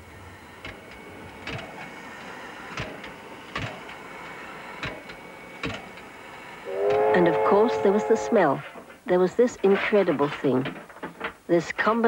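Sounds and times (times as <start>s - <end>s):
steam locomotive sharp knocks: 0.5s - 9.0s.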